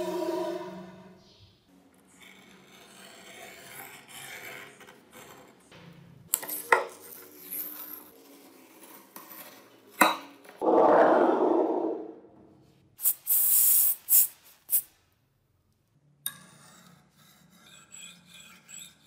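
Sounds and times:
knife scraping paper: 2.1 - 5.6.

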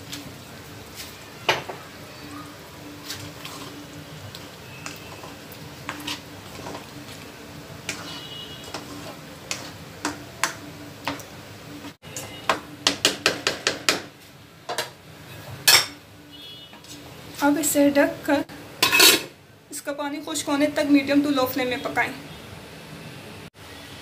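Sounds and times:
spoon tapping and scraping pot: 4.3 - 7.2, 7.8 - 11.3.

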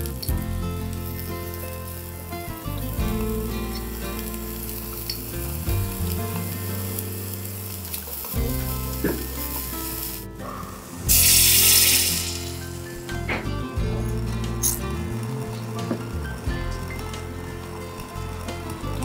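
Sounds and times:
stock hissing in a wok: 0.0 - 13.2
meat sizzling in a wok: 0.0 - 19.0.

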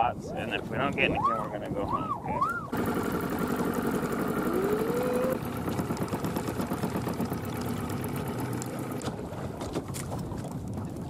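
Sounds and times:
boat motor running with whine: 2.6 - 11.0.

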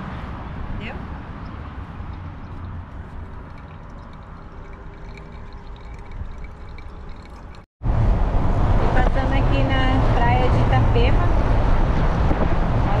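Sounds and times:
vehicle road and engine noise: 0.0 - 13.0.

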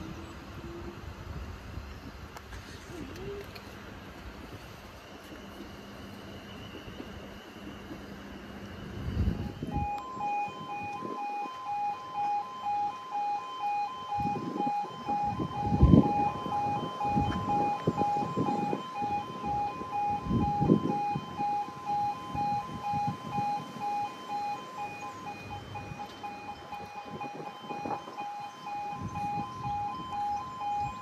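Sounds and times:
level crossing two-tone alarm: 9.3 - 31.0.

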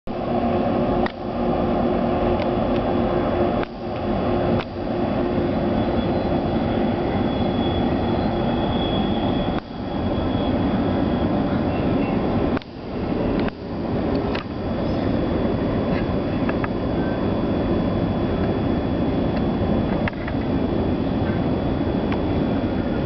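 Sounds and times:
train wheels rumbling on rail: 0.1 - 17.2
faint high-pitched ring: 5.8 - 12.2.

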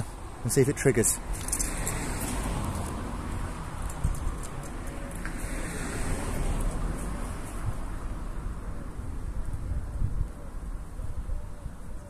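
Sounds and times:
distant road traffic hum: 0.0 - 12.0
wind rumble on microphone: 1.4 - 5.0, 6.1 - 12.0.

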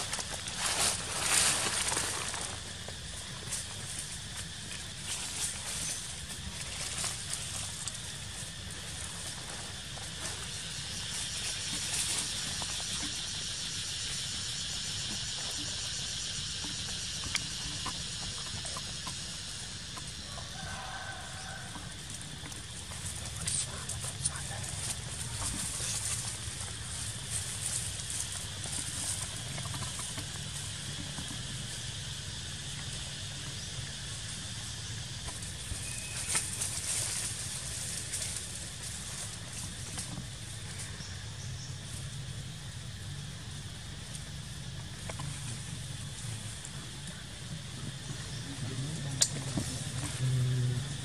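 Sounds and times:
clicks and rustles in dry leaves: 0.0 - 13.4, 20.5 - 31.5, 35.2 - 41.1
steady high hiss: 0.0 - 51.0.

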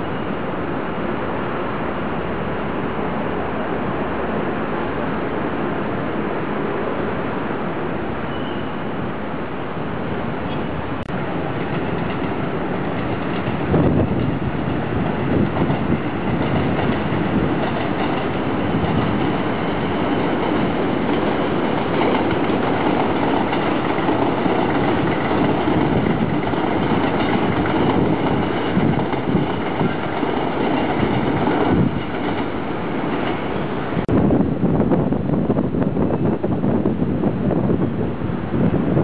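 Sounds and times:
train wheels on rail: 0.0 - 39.0
train clatter: 10.4 - 34.2.

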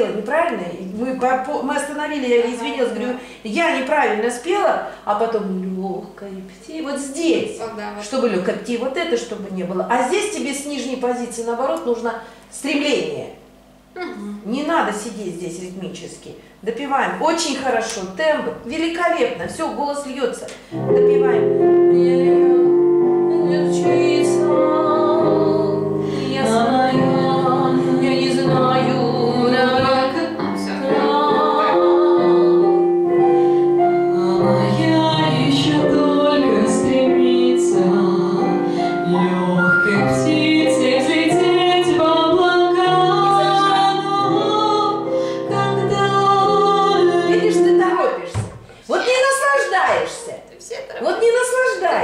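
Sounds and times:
piano accompaniment: 20.7 - 48.5.

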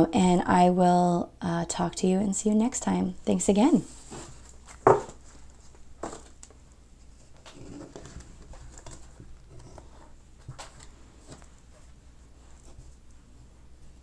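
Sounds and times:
low steady hum: 0.0 - 14.0
soft rustles: 3.8 - 14.0.

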